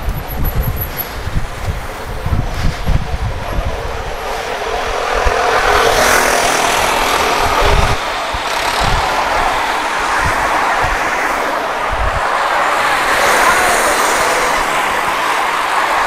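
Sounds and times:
wind buffeting microphone: 0.0s - 16.0s
motorcycle passing close: 3.5s - 11.5s.

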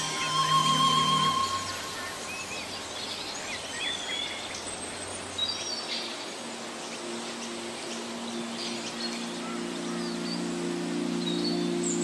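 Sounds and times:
birds chirping and whistling: 0.0s - 4.6s
soft low held music notes: 0.0s - 12.0s
steady hiss: 0.0s - 12.0s.

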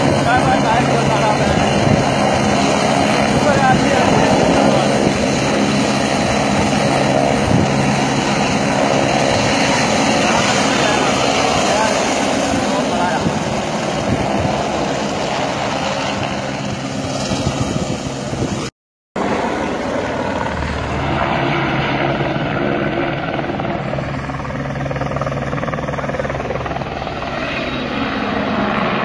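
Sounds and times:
helicopter rotor and engine: 0.0s - 29.0s.

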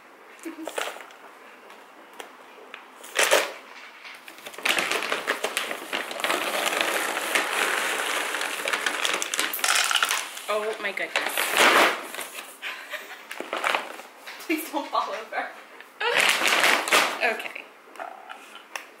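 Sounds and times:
bag rustling: 4.4s - 10.1s
kibble rattling into plastic canister: 4.4s - 10.4s.

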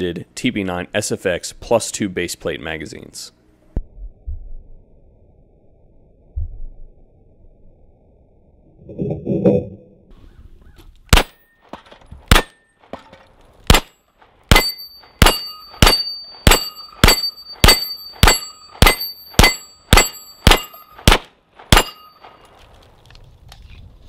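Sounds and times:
pistol shots: 11.1s - 13.0s, 13.7s - 22.4s
steel targets clanging: 11.2s - 22.5s.

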